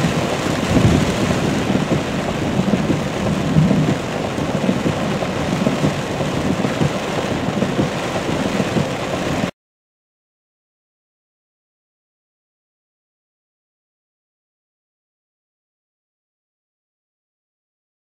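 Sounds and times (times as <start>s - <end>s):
rain beating on a car: 0.0s - 9.5s
road and wind noise: 0.0s - 9.5s.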